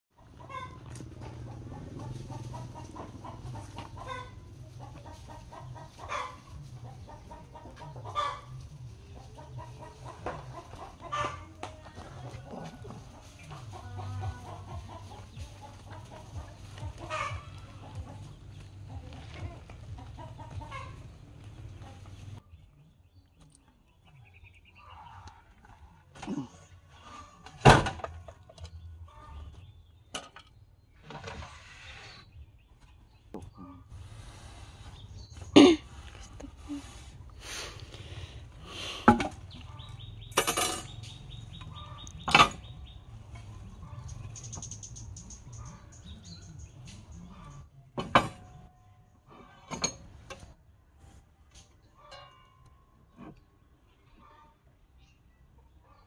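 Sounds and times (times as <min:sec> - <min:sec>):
chickens clucking: 0:00.1 - 0:56.0
wood scraping on saw bed: 0:31.0 - 0:32.2.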